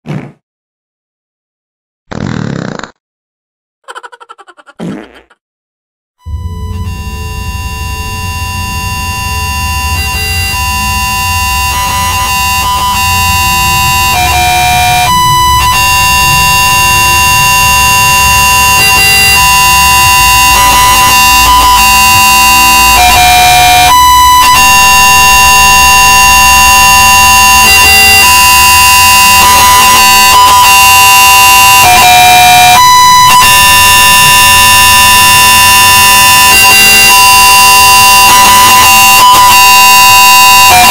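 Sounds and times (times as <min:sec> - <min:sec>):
harsh electronic drone: 0:06.2 - 0:25.3.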